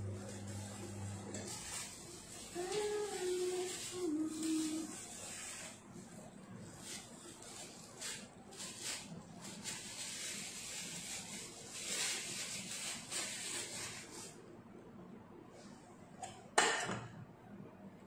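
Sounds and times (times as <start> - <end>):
gloved hands rustling and scraping: 0.4 - 14.4.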